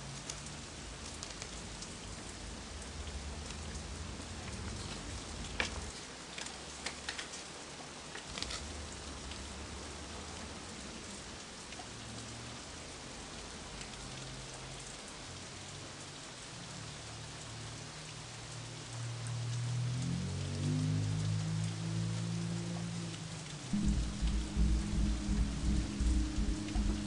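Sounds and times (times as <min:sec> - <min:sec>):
rain hiss: 0:00.0 - 0:27.0
low droning music tone: 0:23.7 - 0:27.0.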